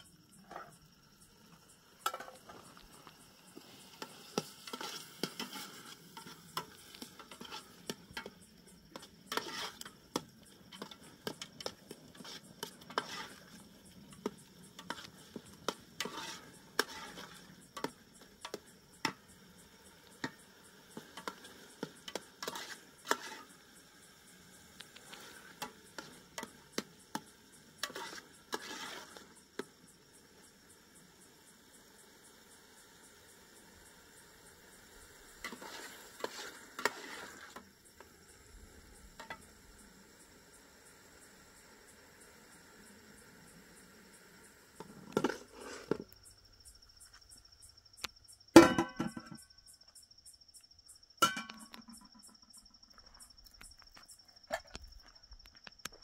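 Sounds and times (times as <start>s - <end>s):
metal ladle stirring in pot: 4.0s - 8.3s, 8.9s - 14.2s, 14.8s - 18.0s, 22.4s - 23.5s, 27.8s - 29.2s, 35.4s - 37.6s.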